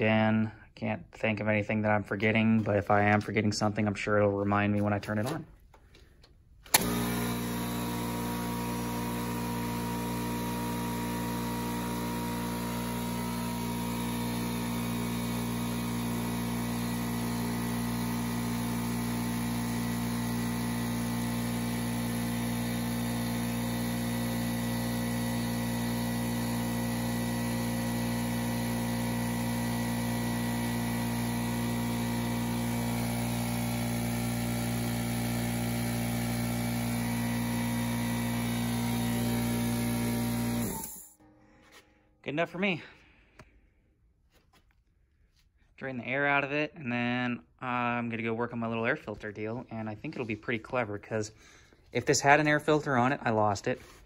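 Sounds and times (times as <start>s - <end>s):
air compressor running: 6.6s - 41.2s.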